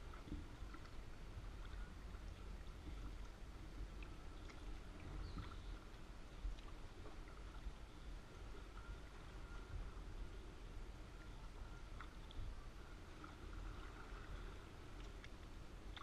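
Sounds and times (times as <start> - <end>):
water drips and splashes: 0.0 - 7.8, 11.9 - 16.0
steady low rumble: 0.0 - 16.0
water lapping around kayak hull: 0.0 - 16.0.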